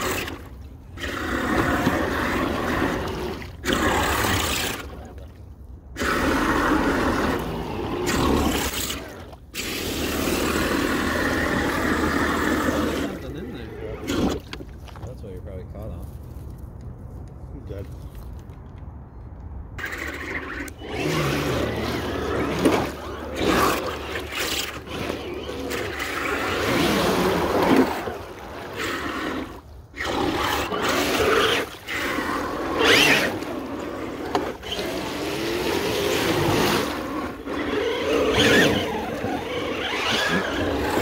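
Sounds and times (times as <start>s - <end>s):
muddy water splashing: 19.8s - 41.0s.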